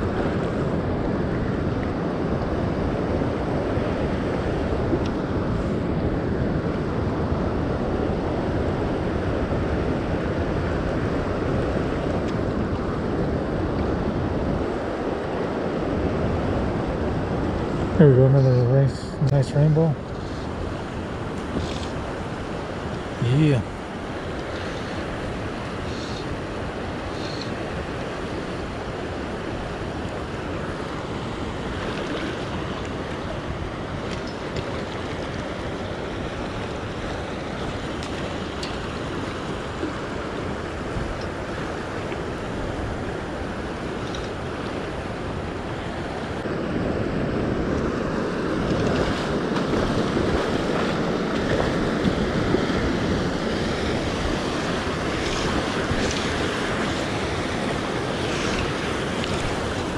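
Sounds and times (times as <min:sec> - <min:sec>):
river current rushing: 0:00.0 - 0:59.9
wind buffeting microphone: 0:00.0 - 0:59.9.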